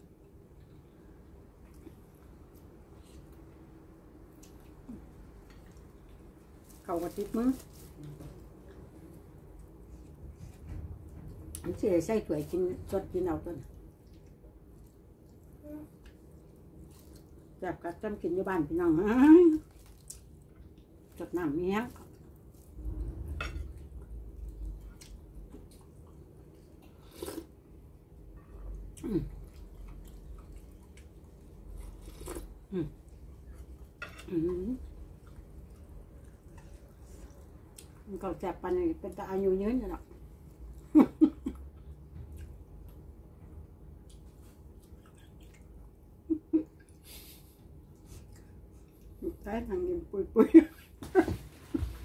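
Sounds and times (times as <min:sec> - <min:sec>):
person eating and chewing: 0:19.6 - 0:21.1, 0:23.6 - 0:27.7, 0:28.6 - 0:38.1, 0:43.9 - 0:49.2.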